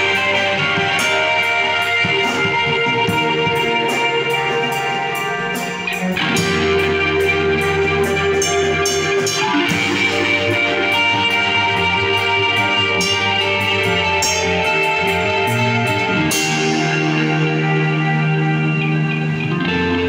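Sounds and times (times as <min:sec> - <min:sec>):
drum kit with cymbal strokes: 0:00.0 - 0:20.0
electric guitars ringing chords: 0:00.0 - 0:20.0.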